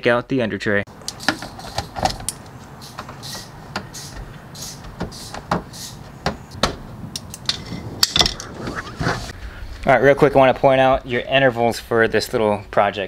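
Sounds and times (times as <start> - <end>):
hand tool clicking: 1.0 - 8.4.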